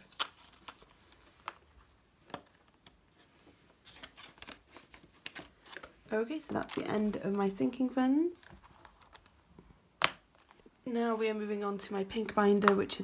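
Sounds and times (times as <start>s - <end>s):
crisp paper snaps: 0.0s - 1.6s, 10.0s - 10.5s
banknotes rustling and crinkling: 0.0s - 11.4s.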